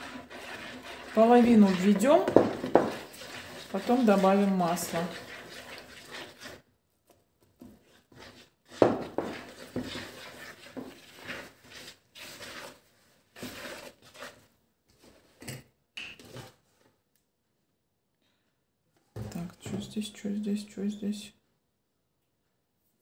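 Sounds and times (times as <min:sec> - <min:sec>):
spoon scraping a plastic bowl: 0:00.0 - 0:06.6, 0:07.6 - 0:15.6.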